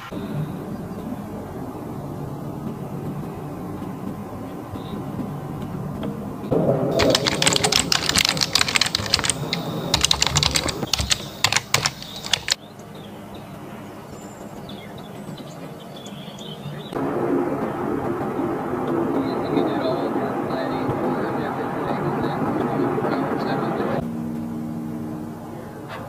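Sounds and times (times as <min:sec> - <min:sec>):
keyboard typing clicks: 0:07.0 - 0:12.6
low steady rumble: 0:17.0 - 0:25.5.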